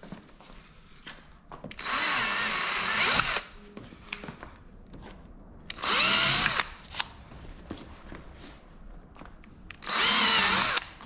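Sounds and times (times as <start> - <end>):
cordless drill running: 1.7 - 3.5, 5.7 - 6.8, 9.8 - 11.0.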